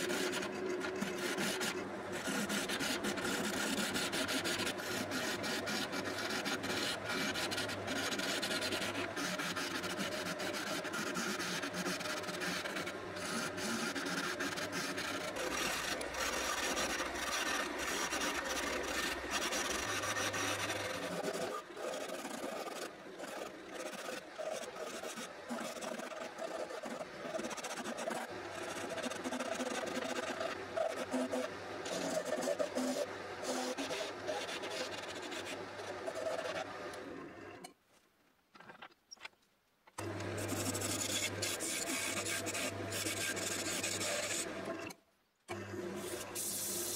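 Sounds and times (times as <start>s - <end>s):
lathe humming: 0.0s - 23.9s, 40.0s - 44.7s
gouge rasping on spinning wood: 0.0s - 36.9s, 40.3s - 44.6s.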